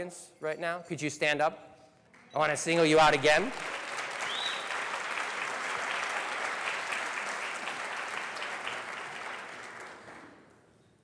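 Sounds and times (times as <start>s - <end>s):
audience applauding: 2.8s - 10.6s.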